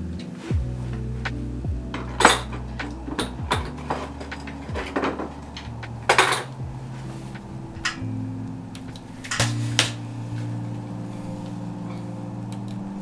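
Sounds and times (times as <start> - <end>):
background music with deep bass: 0.0 - 13.0
metal tools clinking: 1.9 - 6.6.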